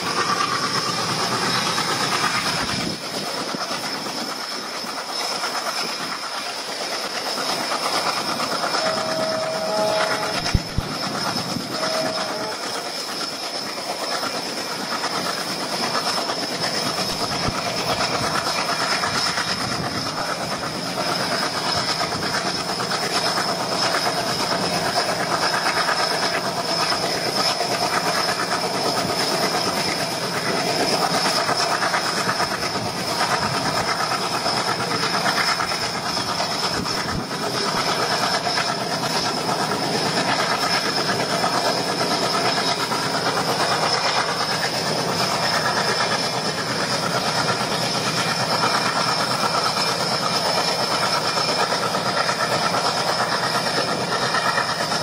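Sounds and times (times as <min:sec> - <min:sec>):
train running noise: 0:00.0 - 0:55.0
train wheels clattering: 0:00.0 - 0:55.0
brief pitched tones: 0:08.7 - 0:10.9, 0:11.7 - 0:12.6.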